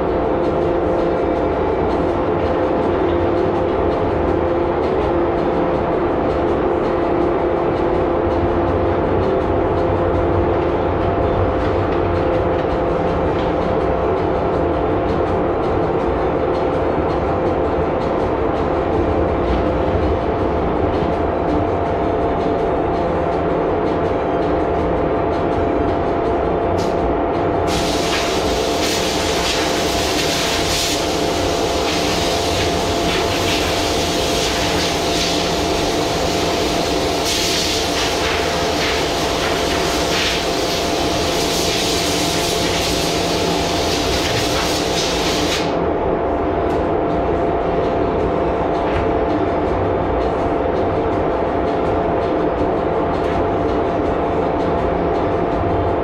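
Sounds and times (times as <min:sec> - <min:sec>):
steady machine drone: 0:00.0 - 0:56.0
spray gun hissing: 0:27.7 - 0:45.7.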